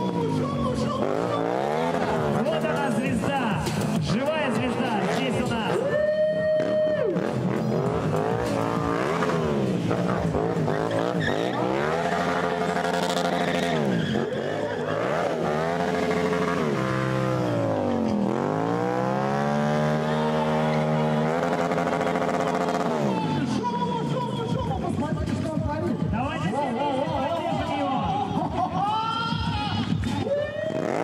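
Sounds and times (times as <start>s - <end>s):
motorcycle engine revving hard: 0.9s - 5.8s, 6.6s - 23.6s, 30.7s - 31.0s.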